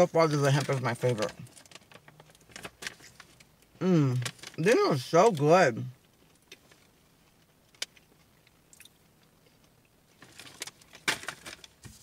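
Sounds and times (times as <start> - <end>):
person chewing crunchy cracker: 7.8 - 10.0.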